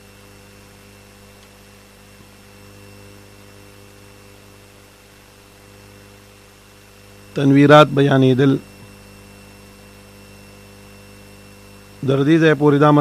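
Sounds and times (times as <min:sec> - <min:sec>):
electrical mains hum: 0:00.0 - 0:13.0
faint click: 0:01.4 - 0:01.6.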